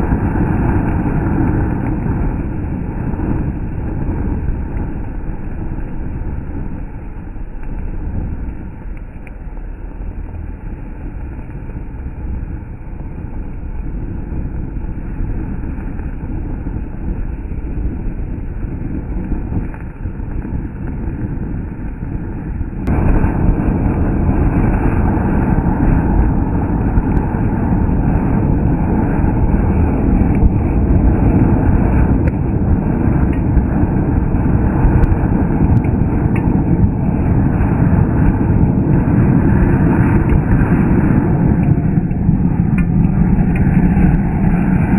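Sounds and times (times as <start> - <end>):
firework fountain hissing sparks: 0.0 - 11.2, 11.8 - 44.9.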